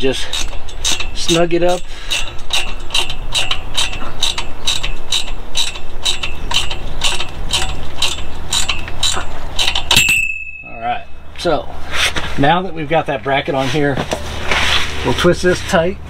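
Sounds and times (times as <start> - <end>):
ratchet wrench clicking: 0.0 - 10.6.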